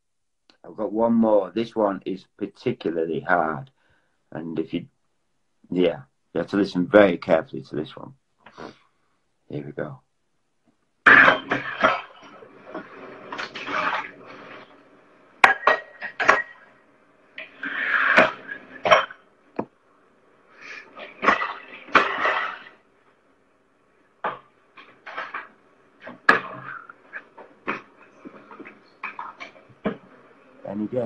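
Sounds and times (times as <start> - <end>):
plates and cutlery clinking: 11.1 - 14.7, 15.4 - 16.7, 17.4 - 19.2, 20.6 - 22.8, 24.2 - 30.0.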